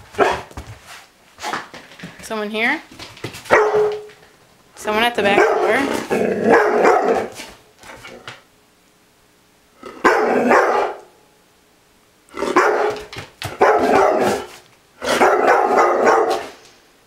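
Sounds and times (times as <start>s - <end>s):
dog snarl-barking: 3.5s - 4.1s, 5.3s - 7.4s, 9.9s - 11.1s, 12.3s - 16.6s.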